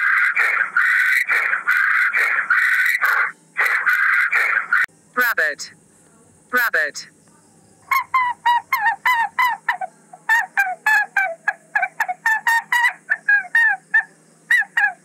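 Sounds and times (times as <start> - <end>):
short pitched animal calls: 0.0 - 4.9.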